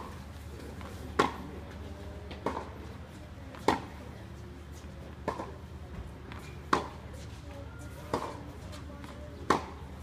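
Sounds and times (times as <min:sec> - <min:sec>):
tennis ball hit with rackets: 0:01.2 - 0:01.4, 0:03.6 - 0:03.9, 0:05.2 - 0:05.6, 0:06.6 - 0:07.0, 0:08.1 - 0:08.4, 0:09.4 - 0:09.8.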